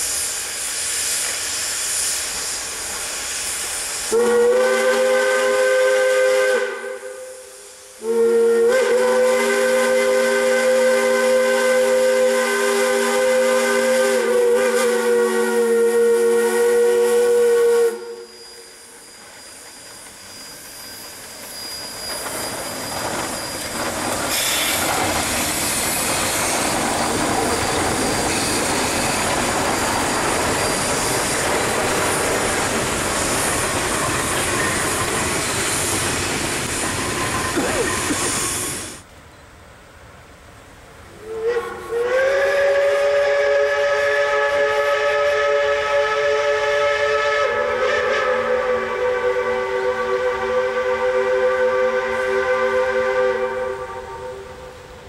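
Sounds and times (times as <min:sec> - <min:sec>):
locomotive exhaust: 0:00.0 - 0:39.1, 0:41.1 - 0:55.0
steam hiss: 0:00.0 - 0:39.1, 0:40.5 - 0:55.0
rumbling train wheels: 0:00.0 - 0:39.2
steam locomotive chime whistle: 0:03.3 - 0:24.8, 0:27.5 - 0:36.0, 0:41.2 - 0:54.9.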